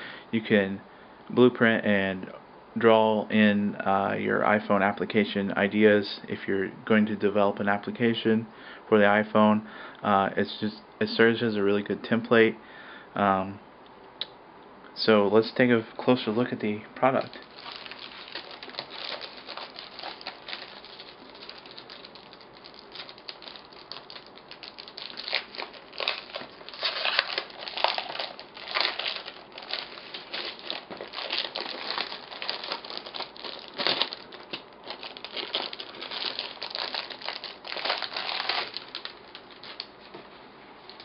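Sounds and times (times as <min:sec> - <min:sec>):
plastic sleeve crinkling: 0:16.3 - 0:40.2.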